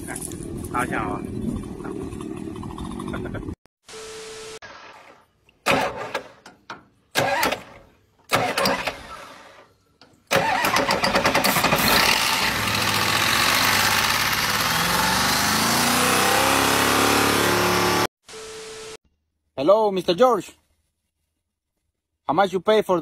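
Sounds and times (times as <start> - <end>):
engine cranking: 7.1 - 9.7, 10.3 - 15.6
engine running rough: 10.5 - 18.1.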